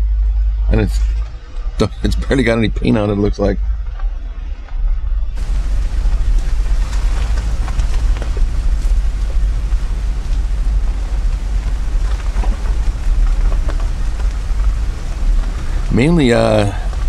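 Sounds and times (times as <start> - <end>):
car tyres and engine rumbling: 0.0 - 17.0
gravel crackling under tyres: 3.7 - 17.0.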